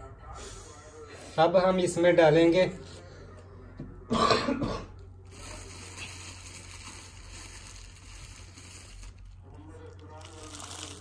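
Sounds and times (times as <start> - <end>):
man clearing throat: 4.1 - 5.0.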